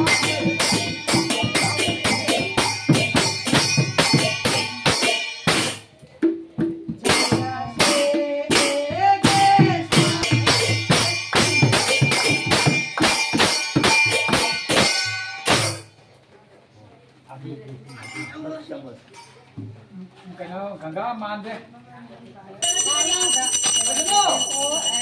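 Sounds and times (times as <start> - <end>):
brass cymbals clashing: 0.0 - 5.8, 7.1 - 15.9
hand drum: 0.0 - 15.9.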